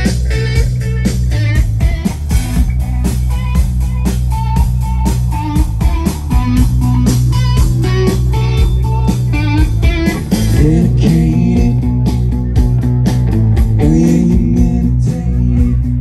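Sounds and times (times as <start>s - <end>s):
live rock band playing: 0.0s - 16.0s
sliding guitar notes: 0.0s - 16.0s.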